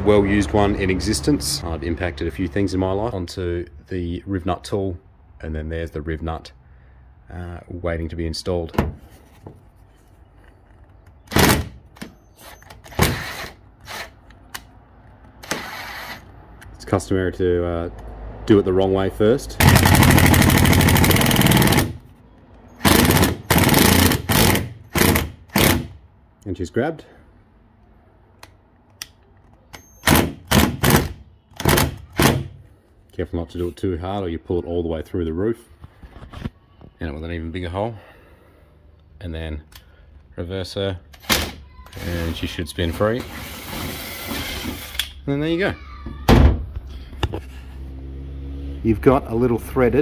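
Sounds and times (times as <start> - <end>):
impact driver bursts: 11.3 - 14.3, 15.4 - 16.3, 19.6 - 22.0, 22.7 - 26.0, 29.8 - 32.6, 41.2 - 42.4, 43.2 - 45.2.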